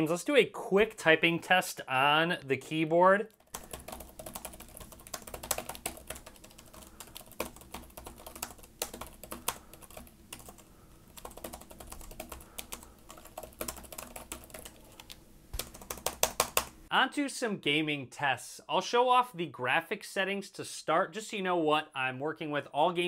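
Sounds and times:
fast keyboard typing: 3.4s - 16.8s.

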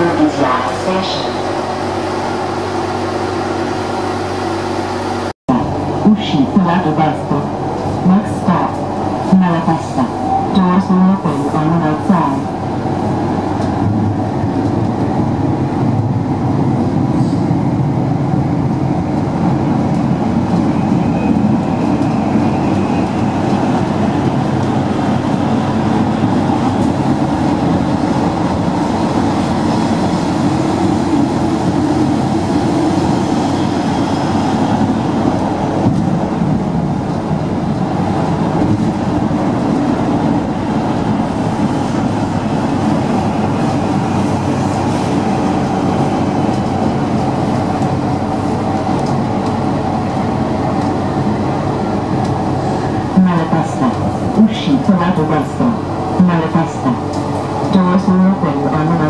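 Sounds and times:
train wheels rolling on rail: 12.2s - 59.0s.

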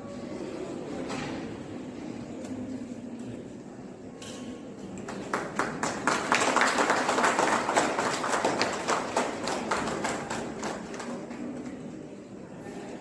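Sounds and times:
small group applauding: 5.0s - 11.8s.

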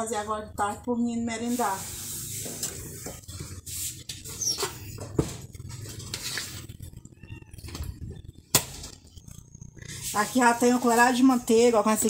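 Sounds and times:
short high squeak: 4.3s - 4.9s.

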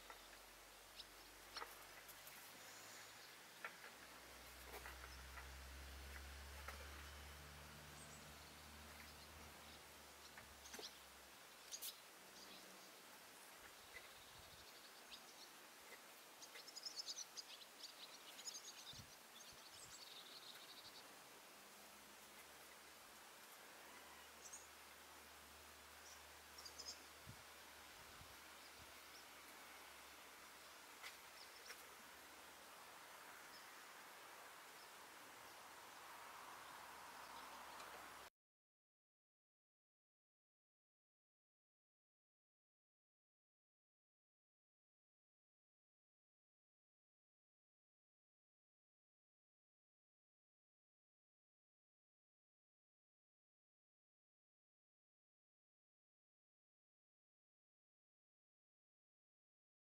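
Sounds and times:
small bird chirping: 0.0s - 21.1s, 25.9s - 27.3s, 28.5s - 32.0s
soft steady hiss: 0.0s - 38.3s.

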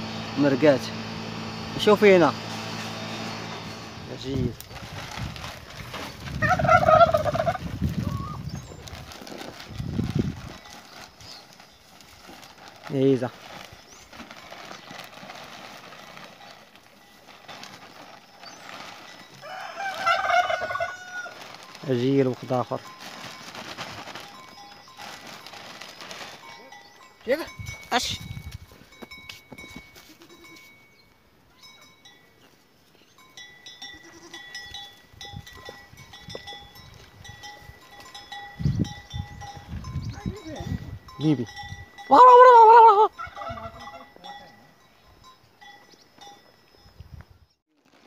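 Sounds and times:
rooster crowing: 19.4s - 21.4s
goats bleating: 33.8s - 34.5s.

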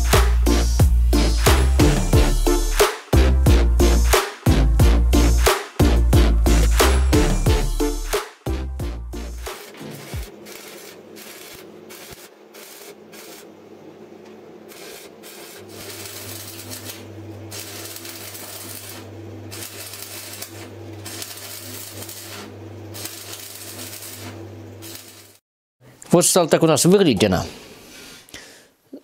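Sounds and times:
welding arc crackling: 9.4s - 25.4s.

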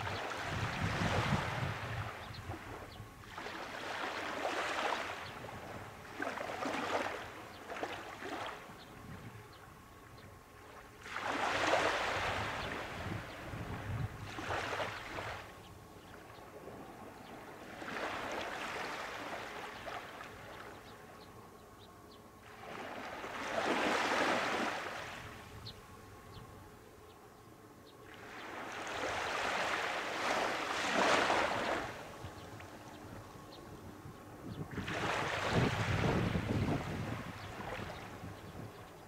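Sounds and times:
small waves breaking on sand: 0.0s - 8.7s, 10.6s - 15.6s, 16.6s - 20.9s, 22.4s - 25.5s, 28.1s - 32.9s, 34.7s - 38.4s.

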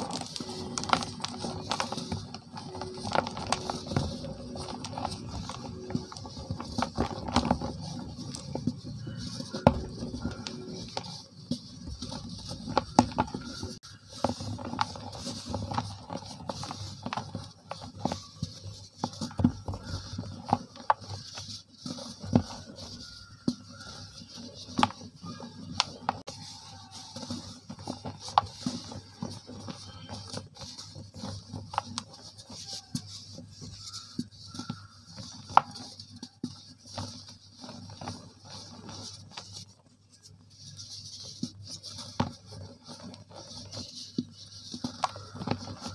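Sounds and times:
powder pattering down: 0.0s - 36.4s
dried cement crunching: 0.0s - 45.9s.

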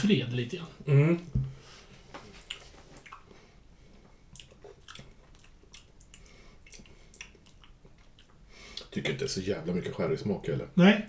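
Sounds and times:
wet mouth clicks and lip smacks: 2.4s - 3.3s, 4.3s - 8.9s.

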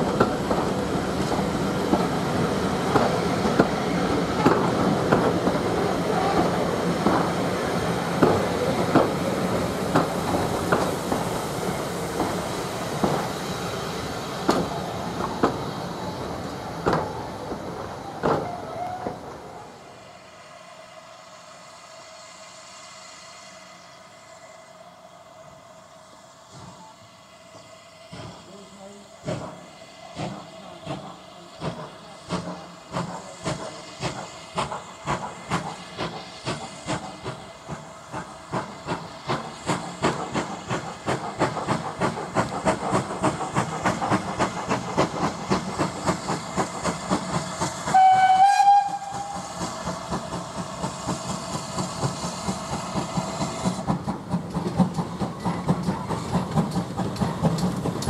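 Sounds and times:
steam hiss: 0.0s - 58.0s
steam locomotive chuffing: 0.0s - 58.0s
train whistle blast: 18.4s - 19.2s, 47.9s - 49.5s.

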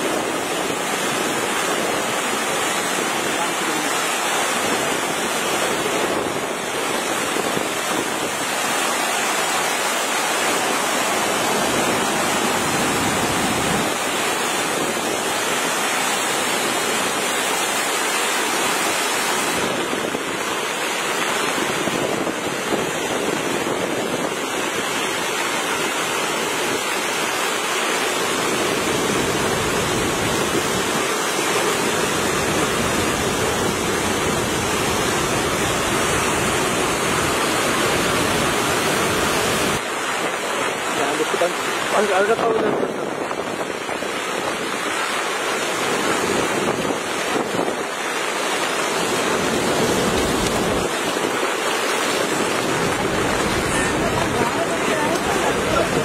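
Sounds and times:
floodwater rushing: 0.0s - 56.0s.

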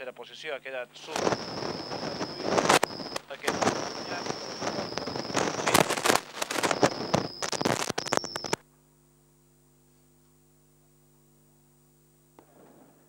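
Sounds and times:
crackling static: 0.0s - 8.6s
faint electrical hum: 0.0s - 13.0s
high whine: 1.0s - 8.6s.

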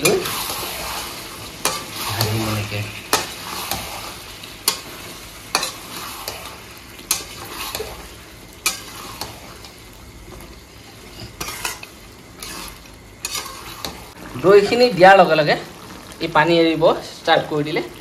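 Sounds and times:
spatula scraping metal pan: 0.0s - 9.8s, 10.9s - 14.2s
curry frying and sizzling: 0.0s - 18.0s.

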